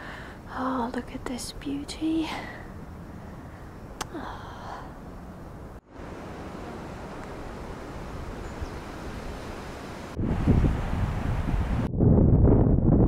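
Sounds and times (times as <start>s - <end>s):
wind through trees: 0.0s - 13.0s.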